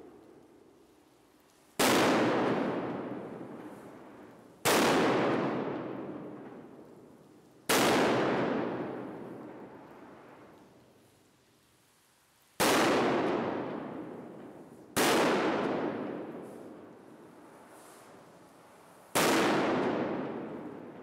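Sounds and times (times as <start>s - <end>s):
echoing firework bangs: 1.8s - 3.9s, 4.6s - 6.7s, 7.7s - 9.8s, 12.6s - 18.2s, 19.1s - 21.0s.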